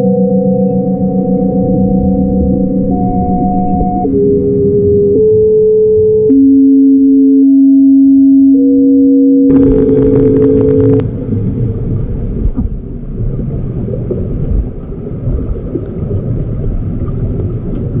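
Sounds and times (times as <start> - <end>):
muffled underwater rumble: 0.0 - 8.8, 9.4 - 18.0
held musical tones: 0.0 - 11.0.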